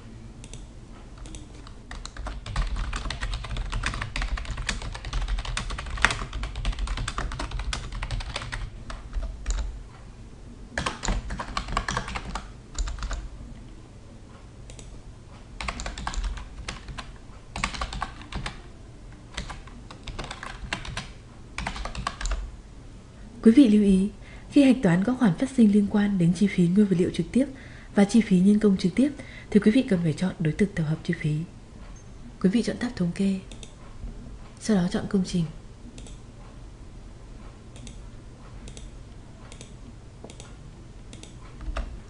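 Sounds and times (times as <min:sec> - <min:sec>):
typing on computer keyboard: 0:01.2 - 0:09.7, 0:10.8 - 0:13.3, 0:15.6 - 0:18.6, 0:19.3 - 0:22.5.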